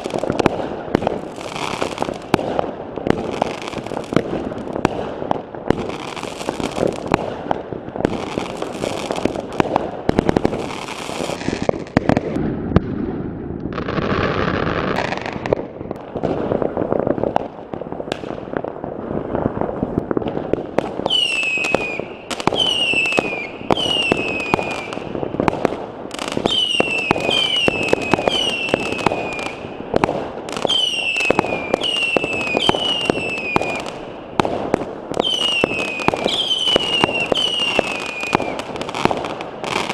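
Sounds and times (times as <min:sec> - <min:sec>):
fireworks bangs and crackles: 0:00.0 - 0:39.9
whistling fireworks: 0:00.0 - 0:39.9
firework pops: 0:18.1 - 0:18.4.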